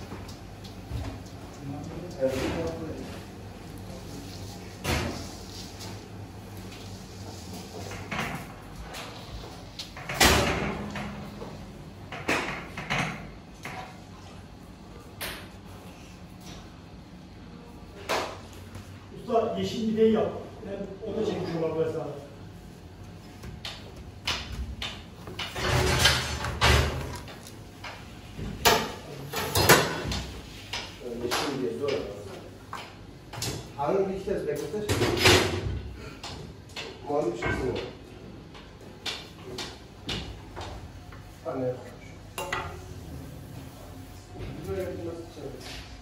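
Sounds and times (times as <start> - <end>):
steady low hum: 0.0 - 29.3.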